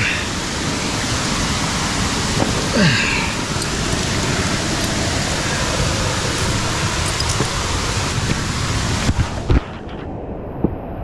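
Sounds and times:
waterfall roaring: 0.0 - 10.8.

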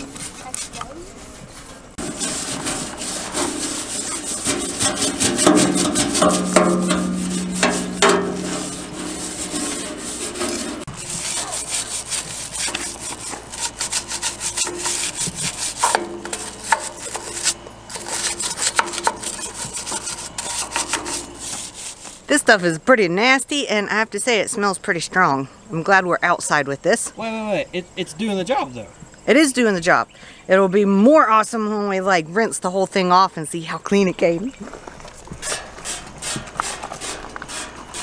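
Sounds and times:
hand scrubbing bodywork: 0.0 - 22.6, 35.4 - 38.0.

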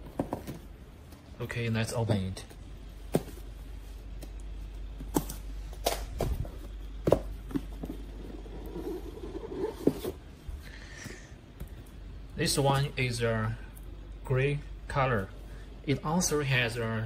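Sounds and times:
taps and knocks on cardboard box: 5.0 - 7.9
cardboard rubbing on cardboard: 8.1 - 10.2.

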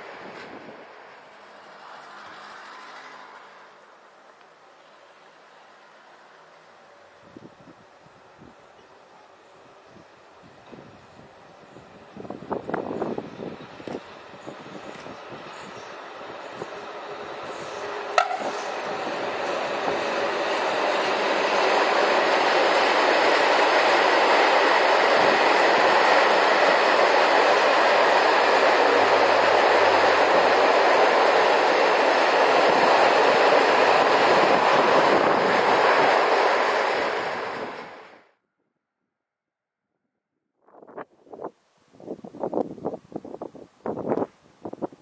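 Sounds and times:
train wheels rumbling on rails: 0.0 - 38.3
clickety-clack of wheels: 1.6 - 3.8, 17.5 - 21.6.

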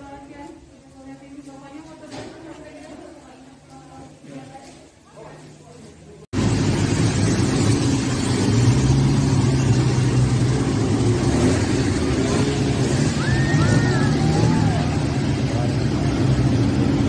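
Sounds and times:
jeep engines running: 6.4 - 17.0.

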